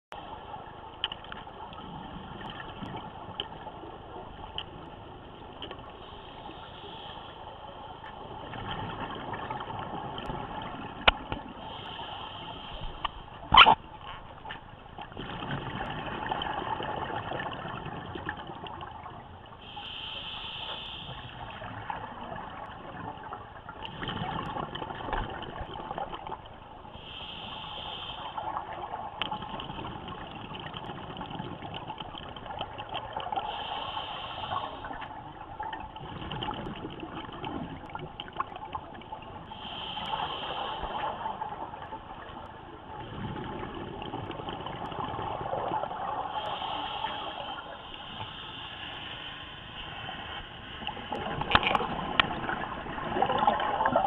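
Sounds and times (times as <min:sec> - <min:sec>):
regulator hissing inhale: 0:06.0 - 0:07.8, 0:11.6 - 0:13.4, 0:19.6 - 0:21.7, 0:26.9 - 0:28.7, 0:33.3 - 0:35.1, 0:39.4 - 0:41.5, 0:46.3 - 0:50.9
rush of exhaled bubbles: 0:15.0 - 0:19.8, 0:21.2 - 0:27.7, 0:28.4 - 0:49.2, 0:49.8 - 0:54.0.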